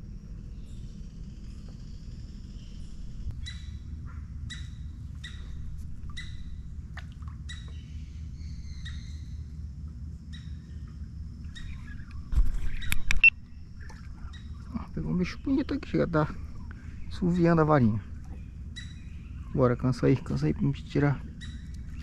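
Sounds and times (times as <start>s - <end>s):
steady low rumble: 0.0s - 22.0s
bird squawking: 3.3s - 6.6s, 11.4s - 20.4s, 21.0s - 22.0s.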